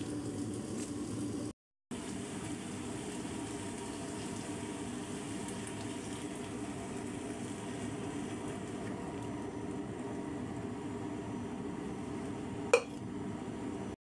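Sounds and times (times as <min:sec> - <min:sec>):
chicken sizzling in a pan: 0:00.0 - 0:13.9.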